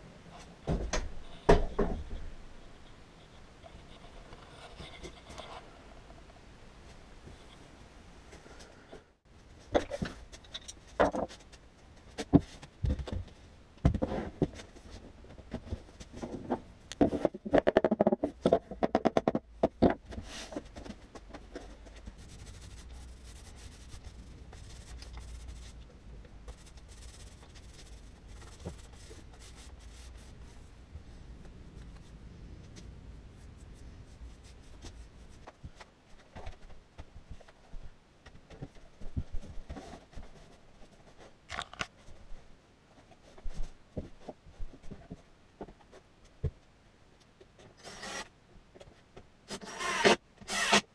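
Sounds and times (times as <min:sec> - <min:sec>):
faint steady rubbing: 0:02.6 - 0:07.6, 0:20.1 - 0:37.9
low hum: 0:22.0 - 0:35.5.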